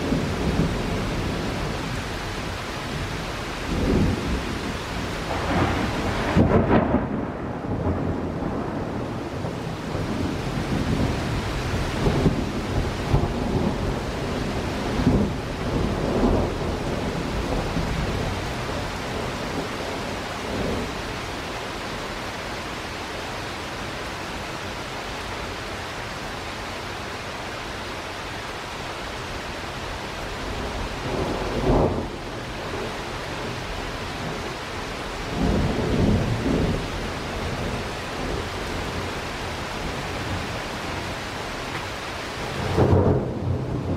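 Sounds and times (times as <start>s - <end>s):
heavy rain: 0.0s - 43.9s
rolling thunder: 3.7s - 21.0s, 30.4s - 34.6s, 35.2s - 41.1s, 42.5s - 43.9s.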